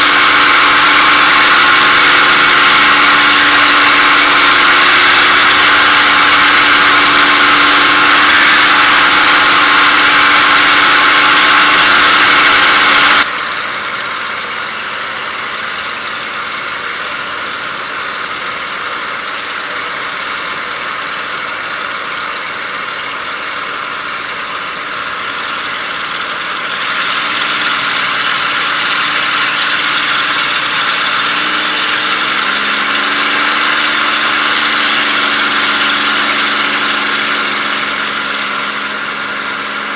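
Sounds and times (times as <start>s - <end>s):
propeller aircraft engine drone: 0.0s - 39.9s.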